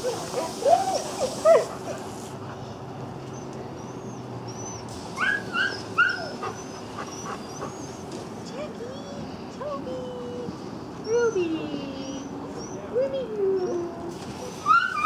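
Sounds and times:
dogs whining and yipping: 0:00.0 - 0:02.0, 0:03.2 - 0:08.2, 0:11.0 - 0:15.0.

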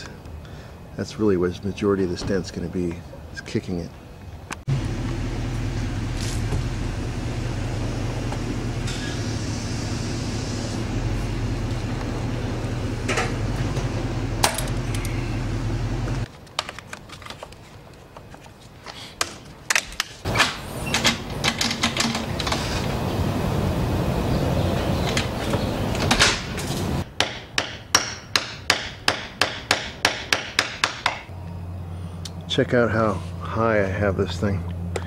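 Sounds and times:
low mechanical hum: 0:04.0 - 0:16.3, 0:20.3 - 0:27.0, 0:31.3 - 0:35.0.

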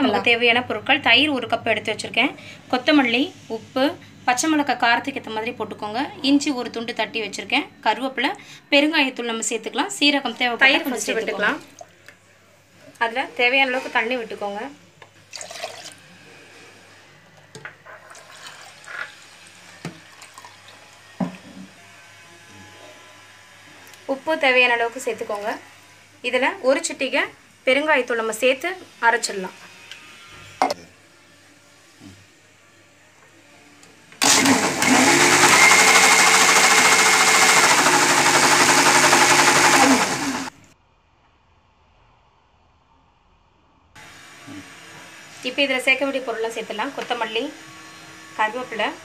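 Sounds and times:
mixer grinder whining: 0:34.2 - 0:40.8, 0:44.0 - 0:49.0.

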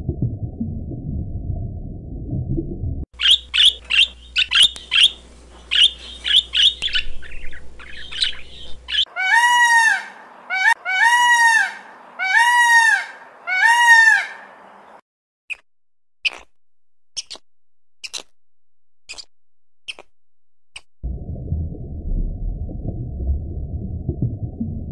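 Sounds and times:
macaw squawking: 0:03.2 - 0:14.6
peacock wailing call: 0:08.9 - 0:14.6.

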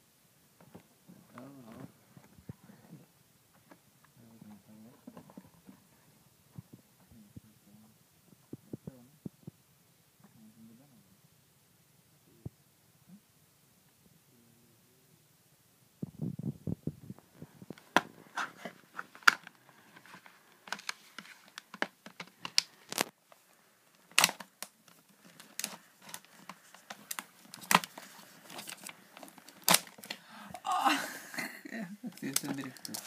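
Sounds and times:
rustling: 0:16.0 - 0:33.0.

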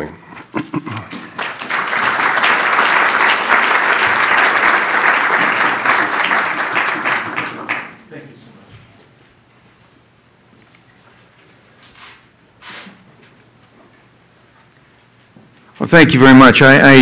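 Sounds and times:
audience applauding: 0:00.8 - 0:08.2.

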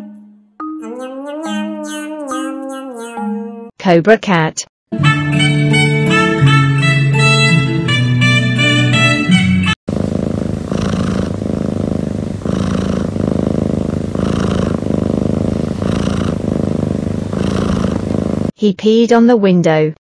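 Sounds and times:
cat purring: 0:09.9 - 0:18.5.

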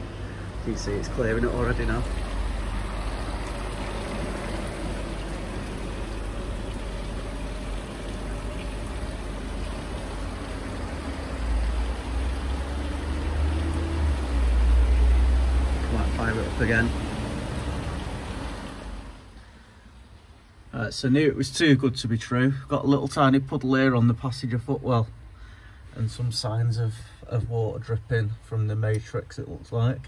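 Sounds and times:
fume extractor fan rushing: 0:00.0 - 0:19.9
cooling fan drawing air: 0:00.0 - 0:30.0.

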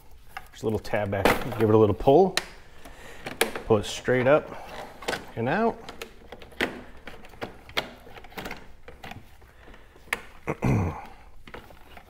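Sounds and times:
person grunting: 0:10.5 - 0:11.2.

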